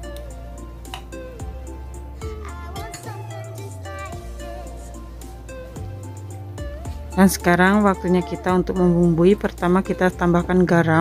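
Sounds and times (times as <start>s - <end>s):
gliding melody: 0.0s - 11.0s
sustained low bass: 3.6s - 11.0s.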